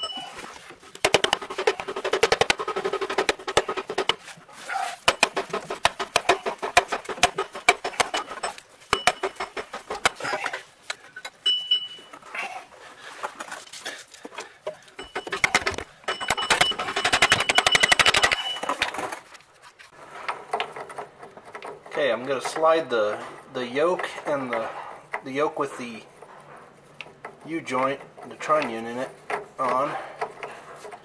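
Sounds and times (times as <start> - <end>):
metallic clicking and rattling: 0.0 - 4.2, 5.0 - 11.4, 14.2 - 19.4.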